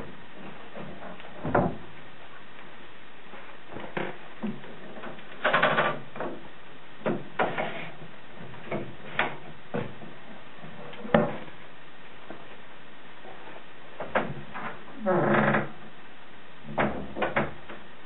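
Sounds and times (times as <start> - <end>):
wooden knocks and clunks: 0.0 - 2.0, 3.7 - 11.5, 14.0 - 15.7, 16.7 - 17.9.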